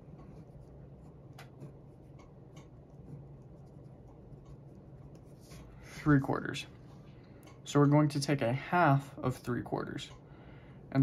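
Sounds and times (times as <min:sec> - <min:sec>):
pen scratching on paper: 0:00.1 - 0:05.8.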